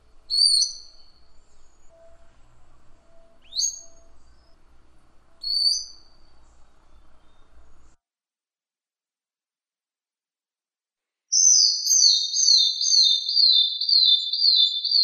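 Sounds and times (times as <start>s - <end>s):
bird whistling calls: 0.0s - 8.0s, 11.4s - 15.0s.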